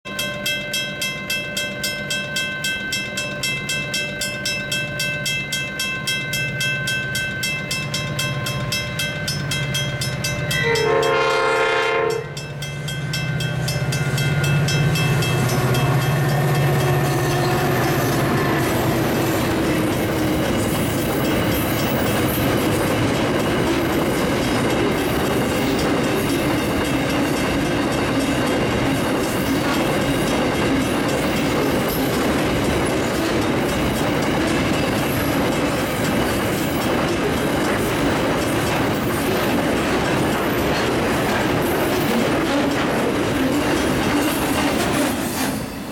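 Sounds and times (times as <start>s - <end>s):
level-crossing bell ringing: 0.1s - 22.6s
locomotive horn: 10.5s - 12.4s
wagons clattering over rails: 14.6s - 45.9s.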